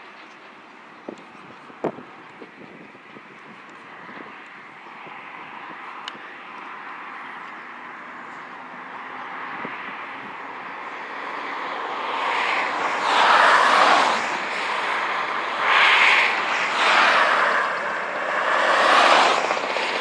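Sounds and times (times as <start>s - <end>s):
race car engine running hard: 8.0s - 20.0s.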